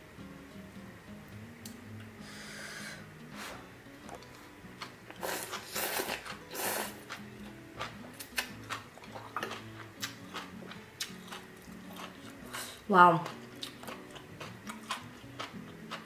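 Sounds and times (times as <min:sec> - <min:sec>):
soft background music: 0:00.0 - 0:16.0
chewing: 0:04.1 - 0:16.0
loud slurps: 0:05.2 - 0:07.0.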